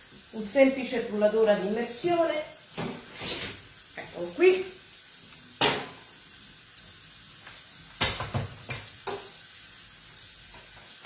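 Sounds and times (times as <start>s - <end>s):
meat sizzling in a pan: 0.0s - 11.0s
kitchen items knocking: 8.0s - 8.8s.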